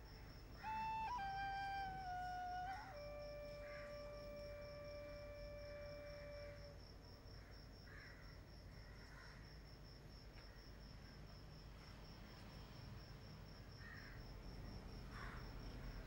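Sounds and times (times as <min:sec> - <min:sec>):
crickets chirping: 0:00.0 - 0:16.0
held music note: 0:00.6 - 0:06.8.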